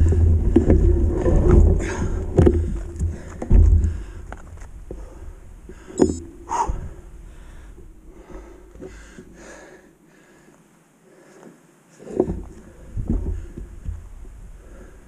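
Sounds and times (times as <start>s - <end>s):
wind rumble on microphone: 0.0s - 8.3s.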